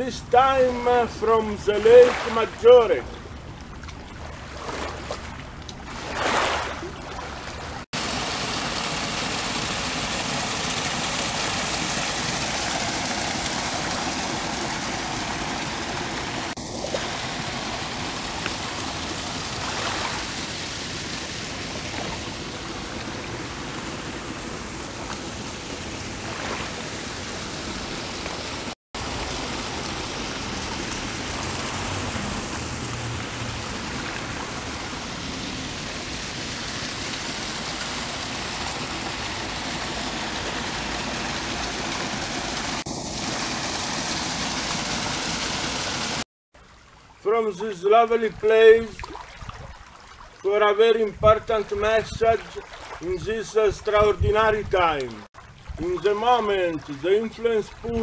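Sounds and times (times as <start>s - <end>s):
water rushing hiss: 0.0s - 3.3s, 4.2s - 46.3s.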